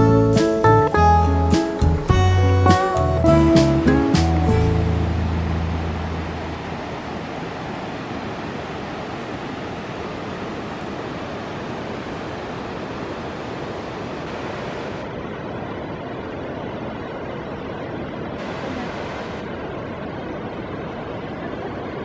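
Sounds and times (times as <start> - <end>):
low guitar notes: 0.0 - 6.8
steady rushing noise: 4.8 - 22.0.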